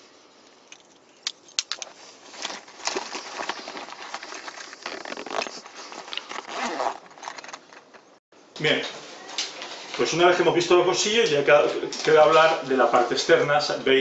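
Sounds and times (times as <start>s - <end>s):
nylon backpack pocket rustling: 1.8s - 8.2s.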